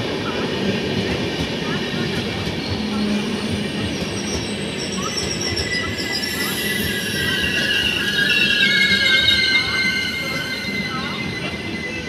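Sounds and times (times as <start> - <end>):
train wheels rumbling over track: 0.0 - 12.0
high-pitched wheel squeal: 2.6 - 12.0.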